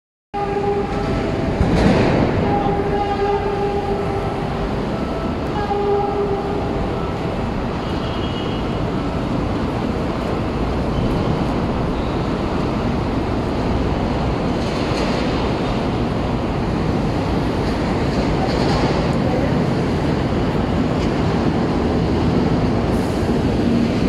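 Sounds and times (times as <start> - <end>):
locomotive horn blasts: 0.4 - 1.4, 2.4 - 7.0, 7.8 - 8.9.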